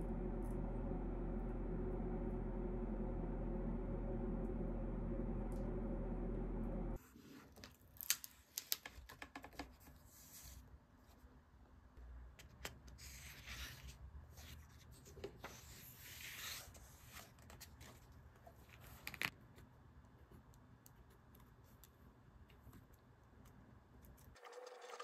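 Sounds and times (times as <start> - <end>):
steady hum: 0.0 - 7.0.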